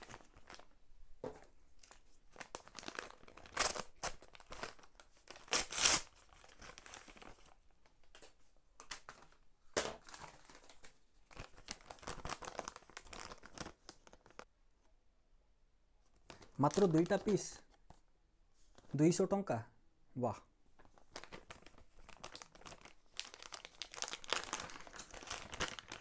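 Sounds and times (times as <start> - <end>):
paper packaging tearing and crinkling: 2.3 - 7.6, 21.0 - 26.0.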